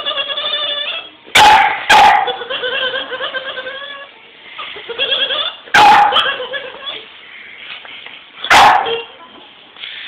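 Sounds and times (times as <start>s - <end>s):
dog whining: 0.0s - 1.2s, 1.9s - 7.1s
dog barking: 1.3s - 2.4s, 5.7s - 6.4s, 8.4s - 9.1s.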